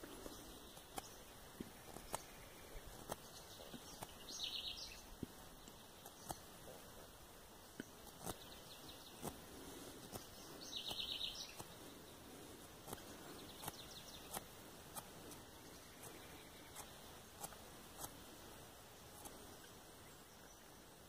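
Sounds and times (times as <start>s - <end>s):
bird chirping trill: 0.2s - 6.5s, 10.1s - 12.3s, 12.9s - 20.9s.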